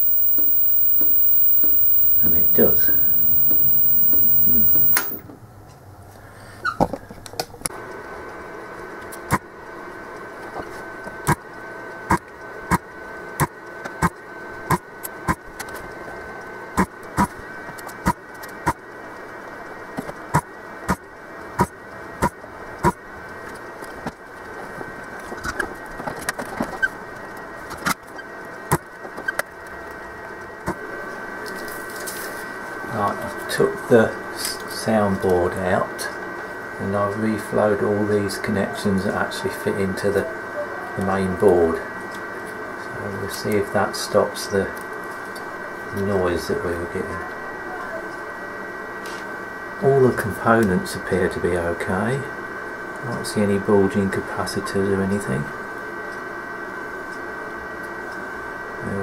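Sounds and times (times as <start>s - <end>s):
desoldering tool humming: 0.0s - 5.2s
faint high whine: 0.0s - 5.2s
sharp clicks: 0.0s - 5.2s
speaker noise: 0.0s - 5.2s.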